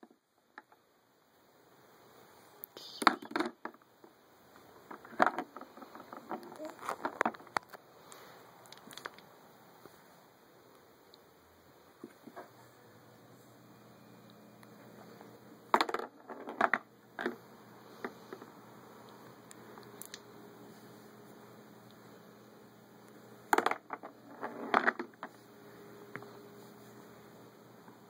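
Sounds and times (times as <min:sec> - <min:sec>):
toy pool balls clacking: 0:04.8 - 0:07.7, 0:15.7 - 0:17.4, 0:23.5 - 0:25.3
steady low hum: 0:09.2 - 0:28.0.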